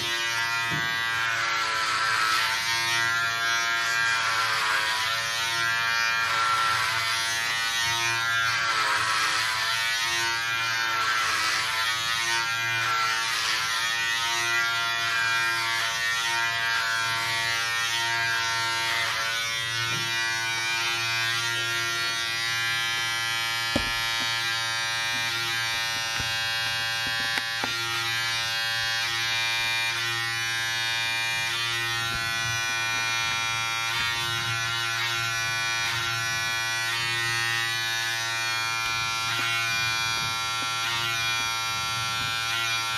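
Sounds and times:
electric hair clipper buzzing: 0.0 - 42.9.

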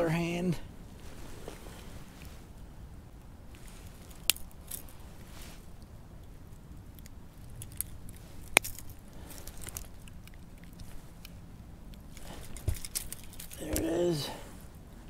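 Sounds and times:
light rustling of handling: 0.9 - 2.6, 3.5 - 14.9
pliers clicking against hook: 11.9 - 13.9.

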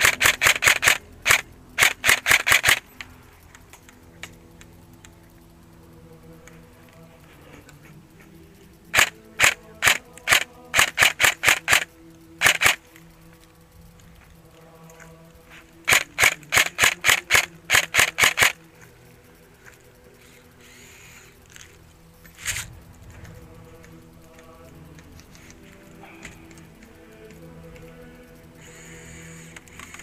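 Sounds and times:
airsoft rifle rapid shots: 0.0 - 3.1, 8.9 - 12.9, 15.8 - 18.7.

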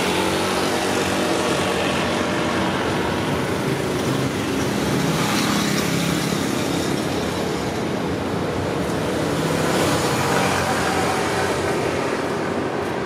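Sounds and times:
traffic noise: 0.0 - 13.0.

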